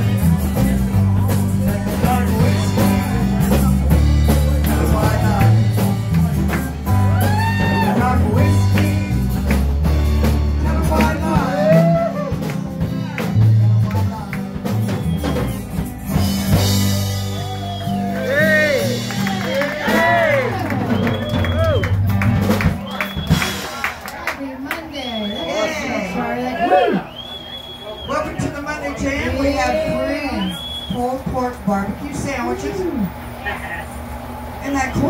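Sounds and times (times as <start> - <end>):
strummed acoustic guitars: 0.0 - 23.8
electric guitar: 0.0 - 24.2.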